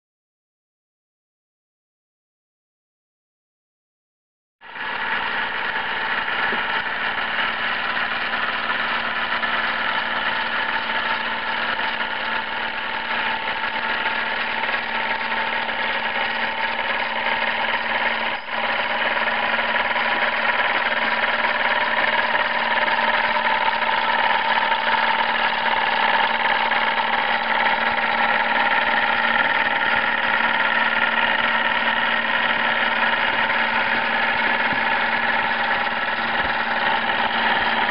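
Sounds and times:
model steam engine running: 4.6 - 37.9.

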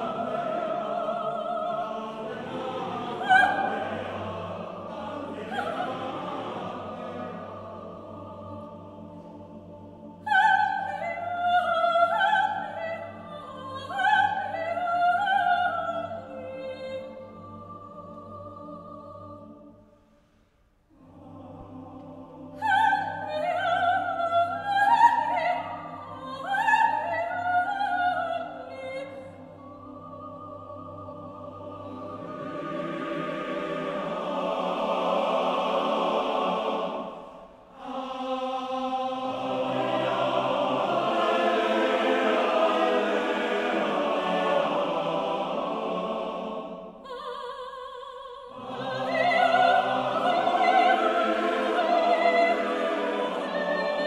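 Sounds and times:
male choir low drone: 0.0 - 14.7, 20.9 - 26.3, 29.3 - 47.1, 48.5 - 54.0.

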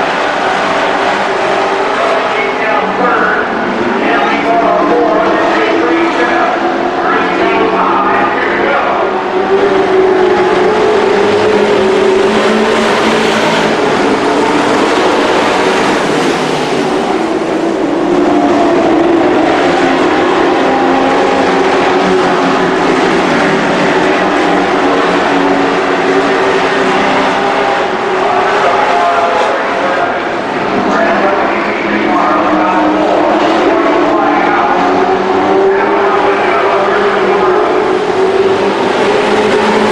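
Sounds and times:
race truck engines: 0.0 - 39.9.

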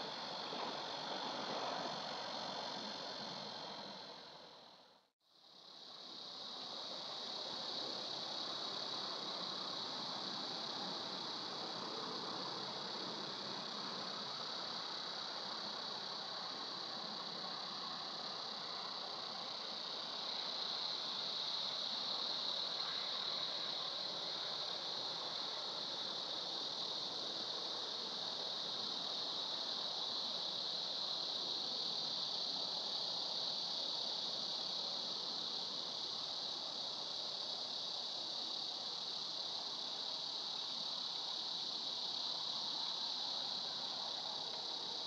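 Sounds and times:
high-pitched insect chorus: 0.0 - 45.0
soft even hiss: 0.0 - 45.0.

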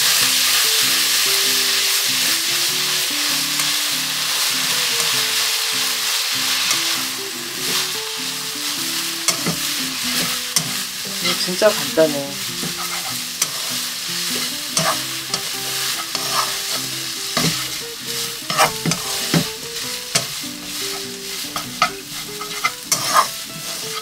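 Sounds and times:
fish sizzling in oil: 0.0 - 24.0
chopsticks clicking against pan: 9.3 - 11.6, 12.6 - 17.8, 20.1 - 23.3.

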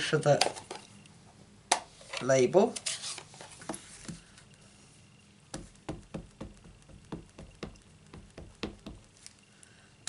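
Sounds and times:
stamp tapping on ink pad: 5.5 - 9.1.

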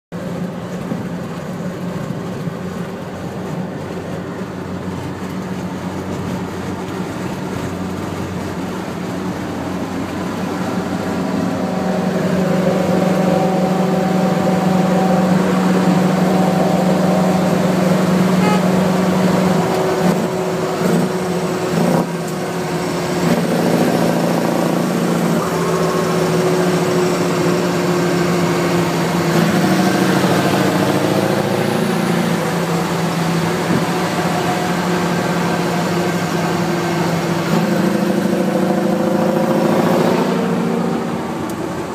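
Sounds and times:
diesel truck engine running: 0.1 - 41.9
wind noise: 25.4 - 35.3.

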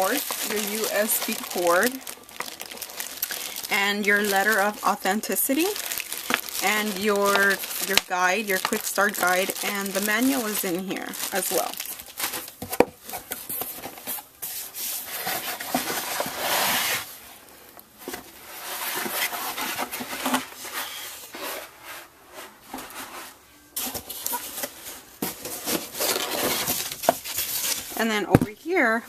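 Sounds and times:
foam rustling against cardboard: 0.0 - 17.2, 18.0 - 28.1.

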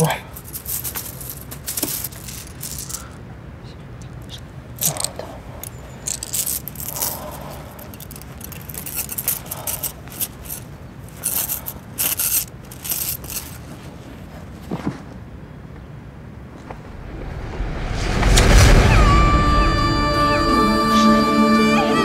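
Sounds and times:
clothes rustling in suitcase: 0.3 - 3.2, 4.8 - 15.4.

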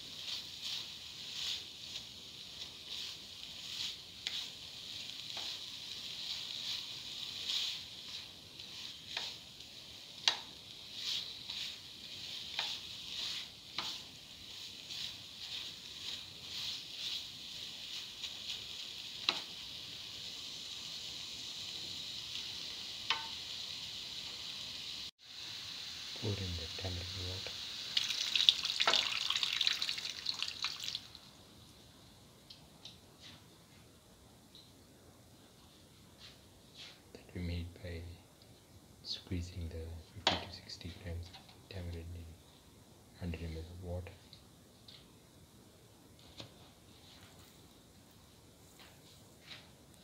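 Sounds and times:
spatula stirring and scraping: 0.0 - 20.2
paste sizzling in a pan: 0.0 - 31.6
spatula tapping the pan: 10.2 - 10.6, 12.4 - 12.9, 19.2 - 19.5, 23.1 - 23.4, 28.8 - 29.1.

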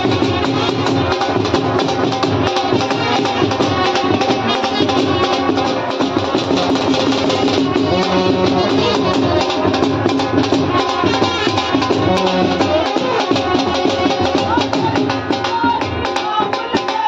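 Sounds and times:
trumpets: 0.0 - 14.7
brass band playing dance music: 0.0 - 16.5
drum beating: 0.0 - 17.0.

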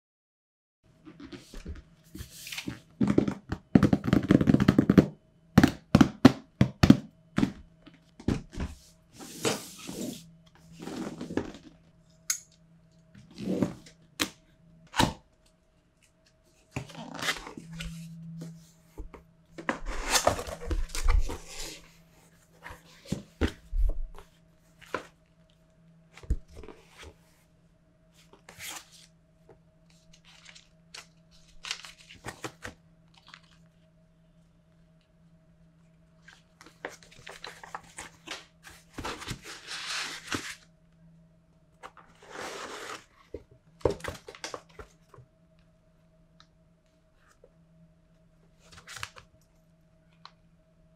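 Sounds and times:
faint steady hum: 0.9 - 50.9
cardboard sliding and rustling: 8.4 - 11.8, 36.9 - 40.6, 42.0 - 43.4.

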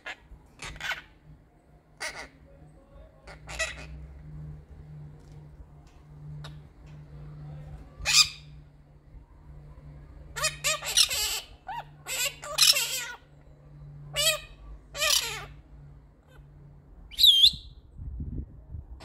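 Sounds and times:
parrot squawk: 0.0 - 1.2, 2.0 - 2.4, 3.2 - 4.1, 8.0 - 8.6, 10.3 - 13.3, 14.1 - 15.6
parrots chattering: 0.0 - 1.3, 2.0 - 4.6, 6.3 - 6.7, 8.0 - 8.6, 10.2 - 13.3, 14.0 - 15.6
parrot whistle: 17.1 - 17.8.

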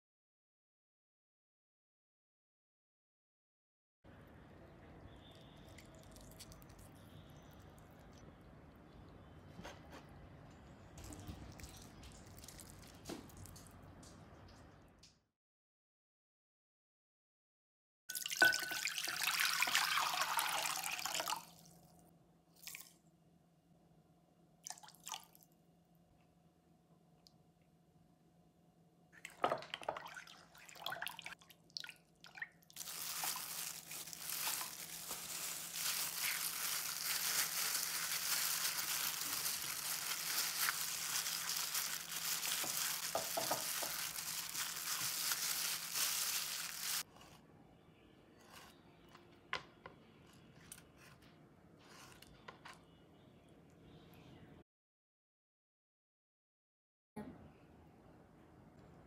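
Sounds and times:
plastic glove crinkling: 11.0 - 13.6, 32.8 - 47.1
water sloshing in a bowl: 11.0 - 14.7, 29.2 - 35.0
faint handling sounds: 32.8 - 47.5.

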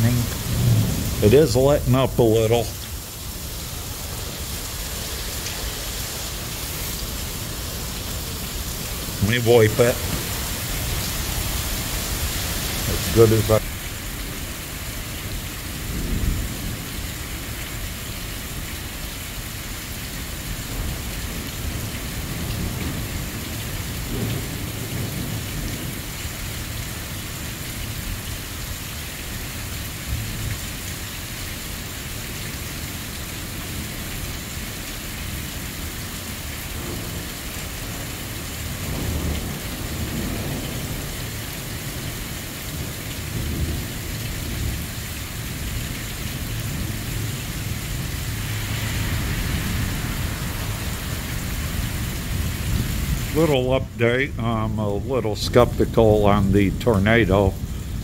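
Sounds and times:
thunder rumbling: 0.0 - 5.8, 6.4 - 13.8, 37.8 - 58.0
heavy rain pouring on pavement: 0.0 - 58.0.

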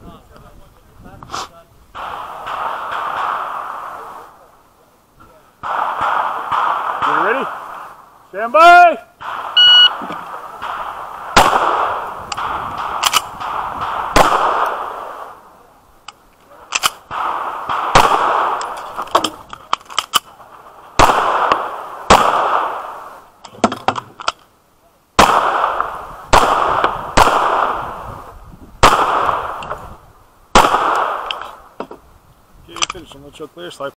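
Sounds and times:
pistol shots with echo: 2.0 - 4.3, 5.6 - 7.9, 9.2 - 15.4, 16.7 - 18.8, 21.0 - 23.0, 25.2 - 28.0, 28.8 - 29.8, 30.5 - 31.6.

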